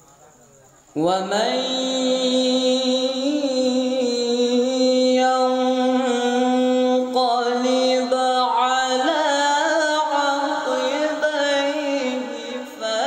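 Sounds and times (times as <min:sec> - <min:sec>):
male voice melodic recitation: 0:01.0 - 0:13.0.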